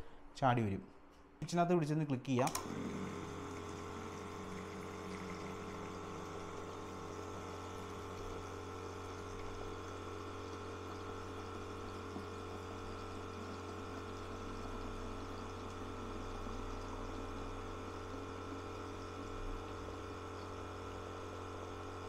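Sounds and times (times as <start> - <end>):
water pumping into plastic bottle: 2.4 - 14.6
electric pump humming: 2.4 - 22.0.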